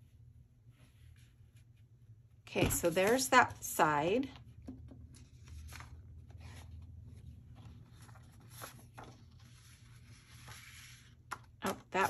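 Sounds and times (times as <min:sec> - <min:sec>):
paper rustling: 0:02.6 - 0:03.7, 0:05.0 - 0:12.0.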